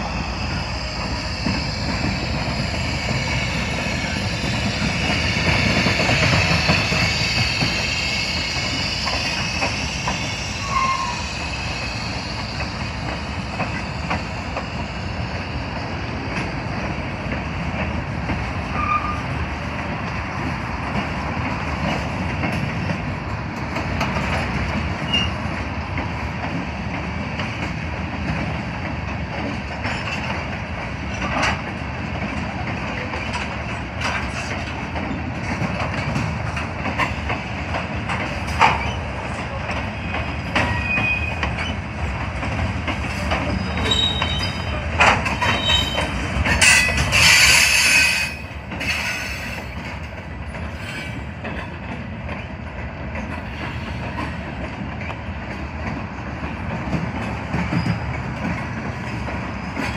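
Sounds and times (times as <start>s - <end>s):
freight train rumbling: 0.0s - 59.9s
harsh high screech: 6.4s - 12.6s
thin wheel squeals: 6.7s - 12.6s, 43.5s - 44.7s.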